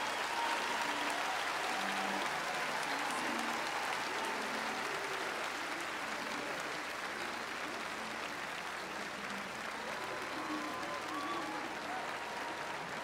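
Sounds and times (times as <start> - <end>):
crowd applauding and cheering: 0.0 - 13.0.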